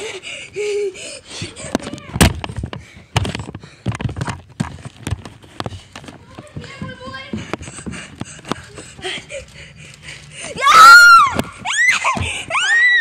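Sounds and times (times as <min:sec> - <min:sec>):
child wailing: 0:10.6 - 0:13.0.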